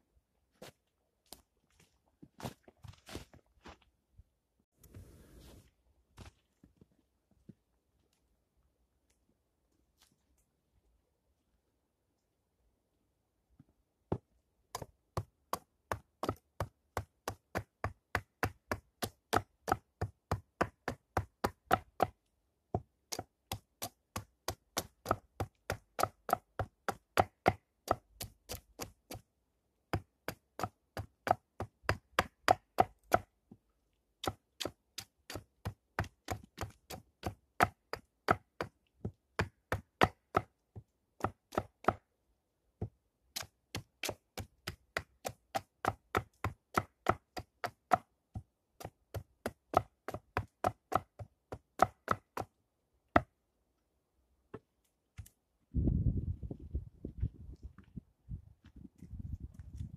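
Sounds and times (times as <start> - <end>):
hand tool chopping wood: 14.1 - 22.2, 22.8 - 29.2, 29.9 - 33.3, 34.2 - 42.1, 42.8 - 53.3.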